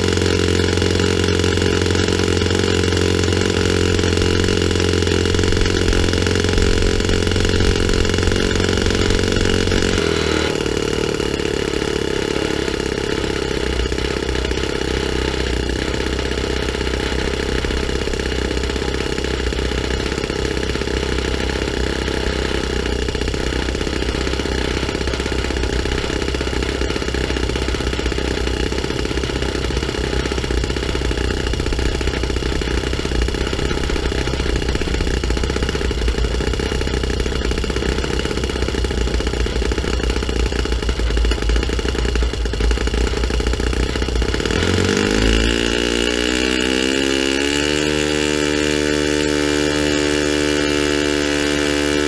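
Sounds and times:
model glow engine idling: 0.0 - 52.0.

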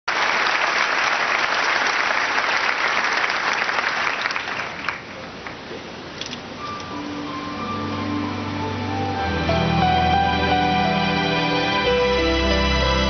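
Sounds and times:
audience applauding: 0.1 - 5.7.

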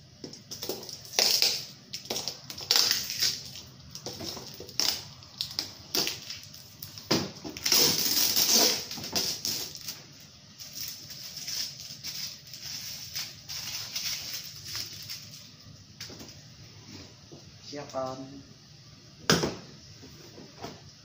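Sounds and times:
packing tape ripping: 0.5 - 10.0, 10.6 - 15.4.

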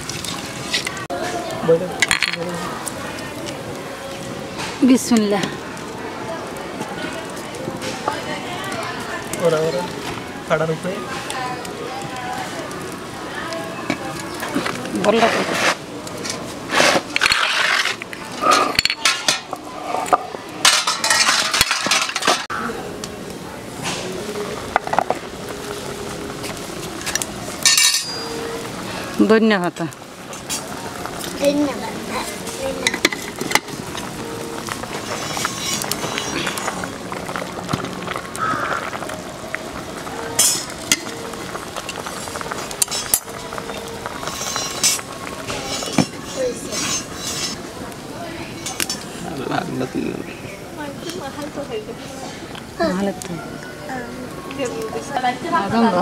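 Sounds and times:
wood fire crackling: 0.0 - 56.0
curry bubbling in a pot: 32.0 - 47.9.

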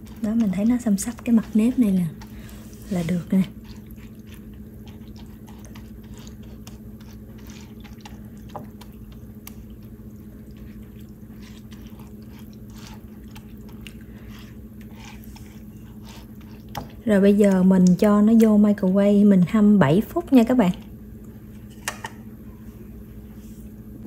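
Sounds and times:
spatula stirring wet rice: 0.0 - 18.2
steady low hum: 0.0 - 24.0.

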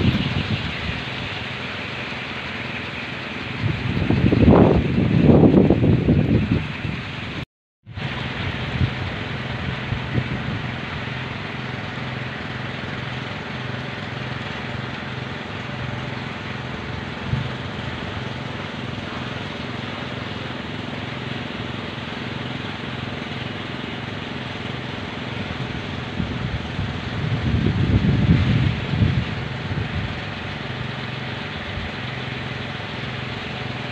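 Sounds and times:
wooden propellers humming: 0.0 - 33.9
wind rushing: 26.1 - 30.3.

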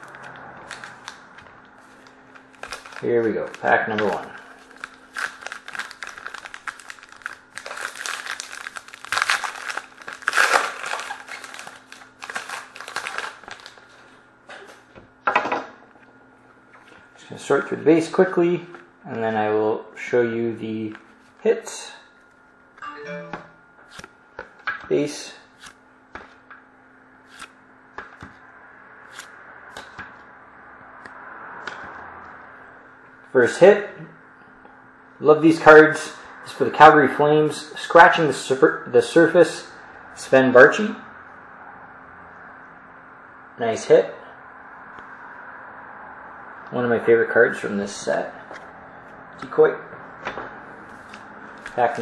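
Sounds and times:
card pack wrapper crinkling: 0.0 - 14.0
faint steady hum: 0.0 - 52.0
cards clicking: 23.9 - 24.9, 27.3 - 28.4, 29.1 - 30.1.

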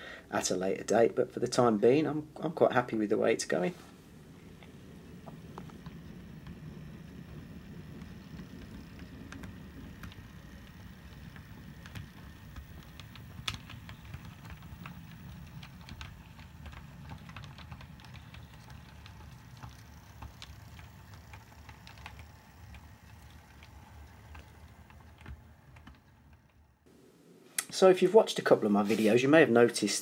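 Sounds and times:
model train motor hum: 4.2 - 26.5
wheel clicks over rail joints: 4.5 - 26.7.

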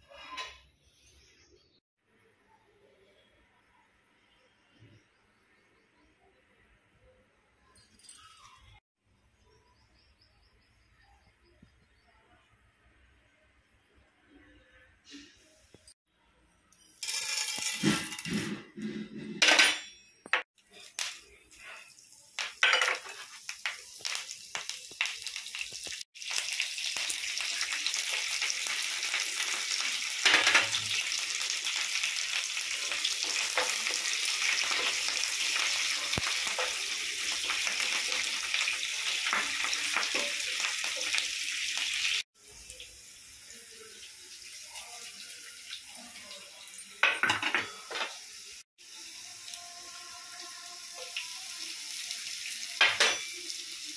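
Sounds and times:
chillies and leaves sizzling in oil: 0.0 - 1.7, 20.4 - 53.9
seeds crackling in hot oil: 20.6 - 47.0.

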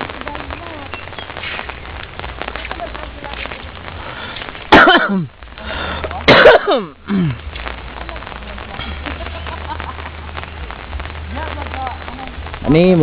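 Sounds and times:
person coughing: 4.7 - 5.3, 6.3 - 7.4.

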